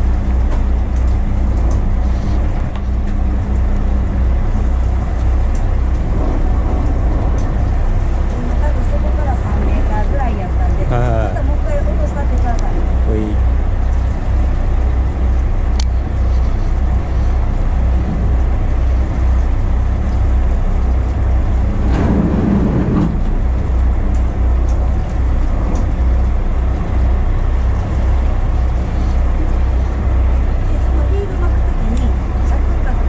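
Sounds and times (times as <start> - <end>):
boat engine rumble: 0.0 - 33.0
rushing swell: 21.5 - 23.9.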